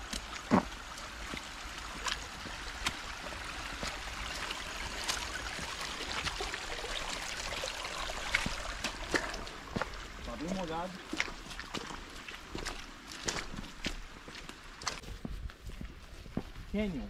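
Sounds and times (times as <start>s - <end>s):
stream trickling: 0.0s - 16.6s
footsteps on wet ground: 0.0s - 17.0s.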